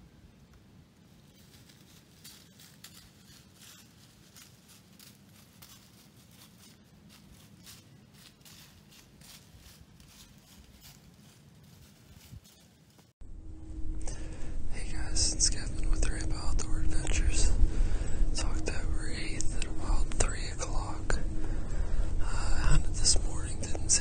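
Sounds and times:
crunching in dry leaves: 0:01.0 - 0:13.2.

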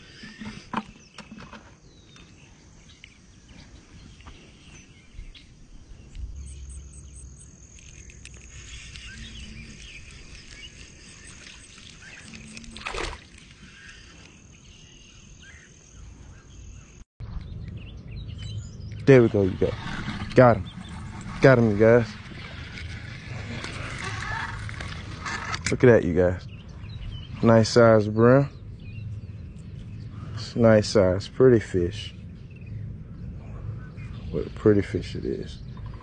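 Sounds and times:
faint bird chirps: 0:00.0 - 0:19.1
high insect tone: 0:05.6 - 0:16.0
fishing reel clicks and rustles: 0:07.4 - 0:09.2.

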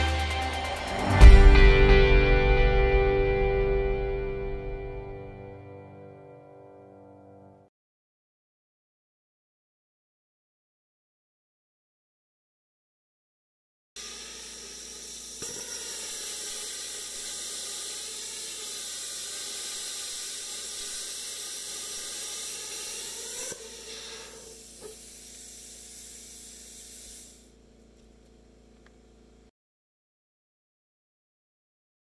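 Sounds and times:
plasma cutter arc hissing: 0:14.0 - 0:27.6
soft hiss of air: 0:15.7 - 0:27.5
click: 0:28.0 - 0:29.0.

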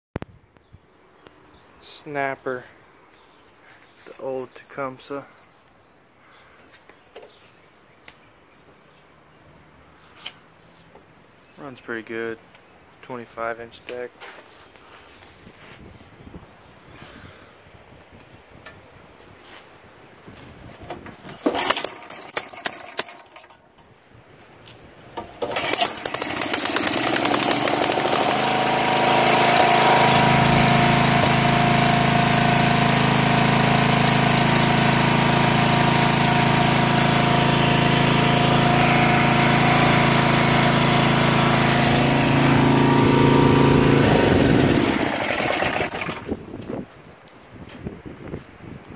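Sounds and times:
riding mower engine starting and running: 0:20.8 - 0:23.7, 0:25.1 - 0:46.5.

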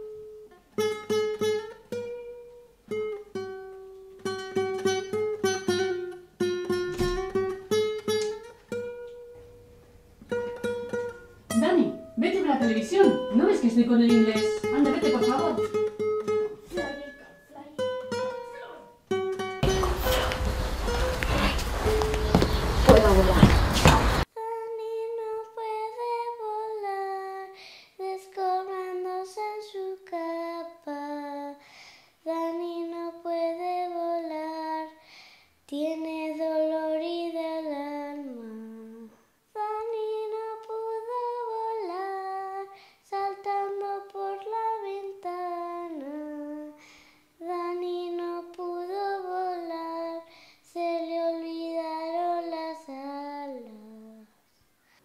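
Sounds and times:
high voice singing slow melody: 0:47.4 - 0:54.4.

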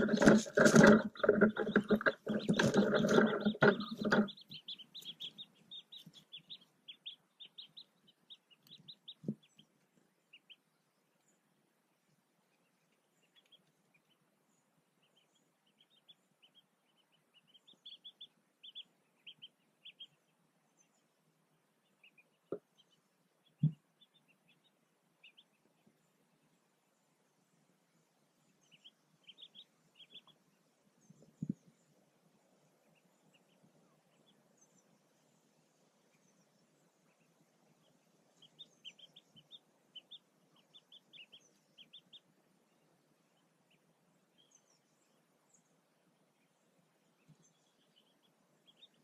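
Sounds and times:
wing brushing against camera: 0:00.0 - 0:04.5
ducklings peeping: 0:00.0 - 0:49.0.

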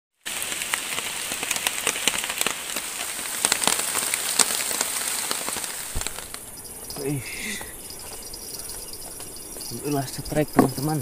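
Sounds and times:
heavy rain: 0:00.2 - 0:11.0
raindrops striking a surface: 0:00.2 - 0:11.0.

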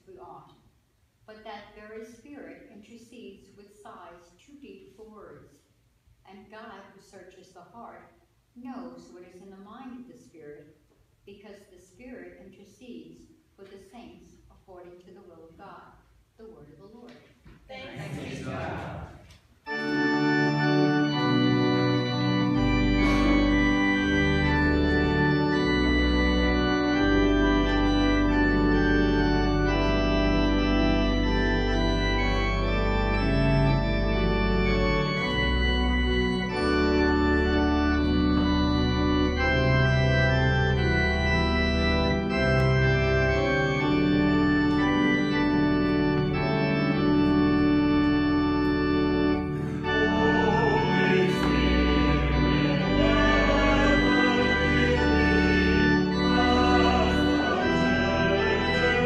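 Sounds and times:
organ playing sustained chords: 0:17.8 - 0:59.0
deep organ bass notes: 0:19.7 - 0:59.0.

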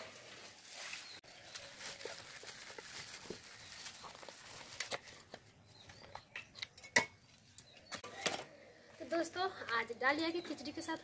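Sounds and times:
plastic bag rustling: 0:00.0 - 0:05.3.

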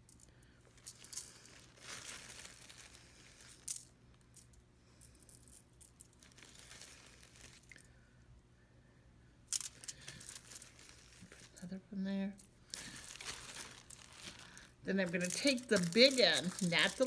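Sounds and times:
plastic bag crinkling: 0:00.7 - 0:04.4, 0:05.4 - 0:07.9, 0:09.5 - 0:11.7, 0:12.4 - 0:17.0.

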